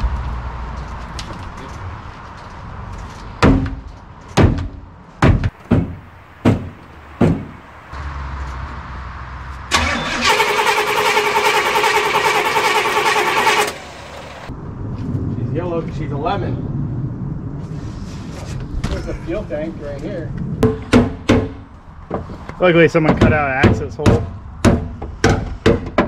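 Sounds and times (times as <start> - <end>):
engine starter cranking: 9.7 - 14.5.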